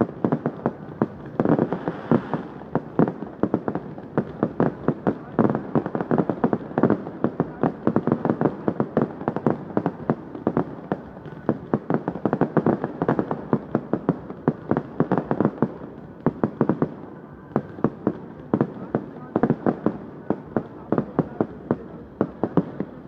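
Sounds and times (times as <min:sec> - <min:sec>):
fireworks bangs and pops: 0:00.0 - 0:23.0.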